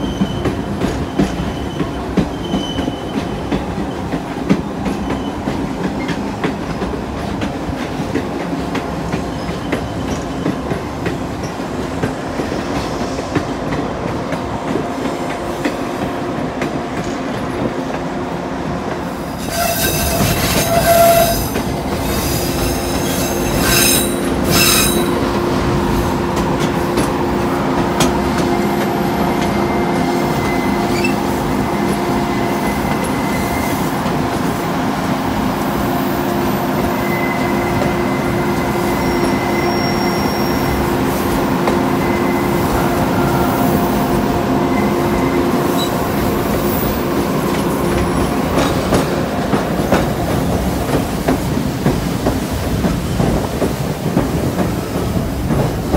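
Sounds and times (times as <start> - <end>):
steel wheels squealing on rail: 0.0 - 4.2, 4.8 - 6.3, 9.0 - 11.8, 19.1 - 25.4, 28.0 - 34.2, 36.0 - 49.2
train cars rumbling: 0.0 - 55.9.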